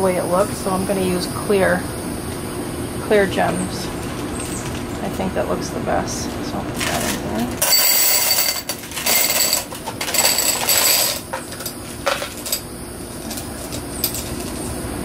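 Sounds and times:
glass gems clattering into glass: 7.6s - 12.6s.

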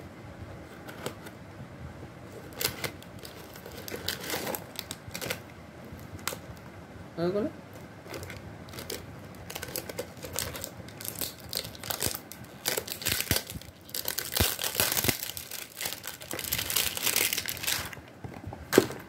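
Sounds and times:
plastic wrapping crinkling: 2.4s - 5.4s, 7.8s - 18.1s.

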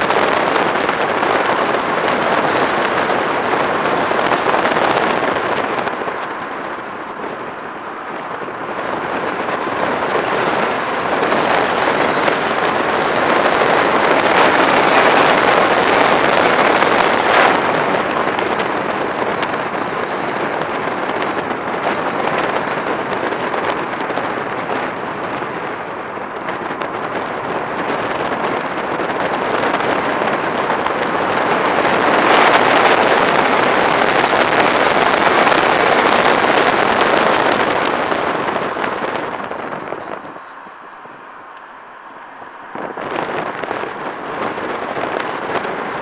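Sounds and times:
road noise: 0.0s - 46.0s
wind buffeting microphone: 0.0s - 46.0s.

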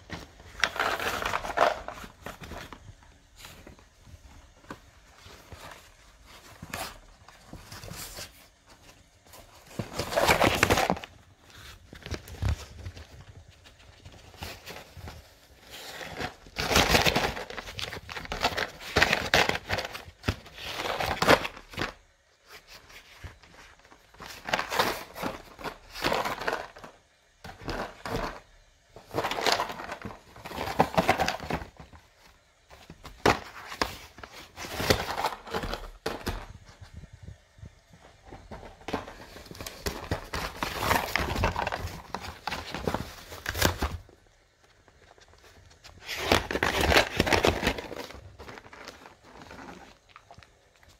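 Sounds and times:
dog tearing cardboard box: 29.1s - 31.7s.

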